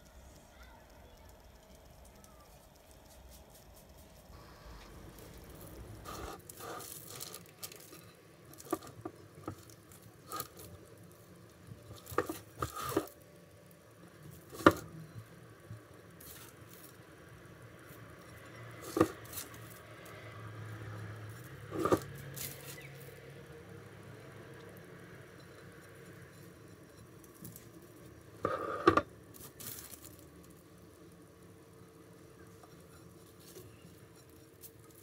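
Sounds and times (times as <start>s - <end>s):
nut crumbs rustling and pattering: 0.0s - 23.4s, 24.1s - 35.0s.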